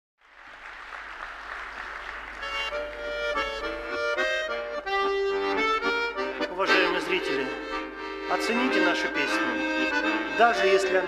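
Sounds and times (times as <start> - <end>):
audience applause: 0.2 - 3.6
accordion playing melody: 1.9 - 11.0.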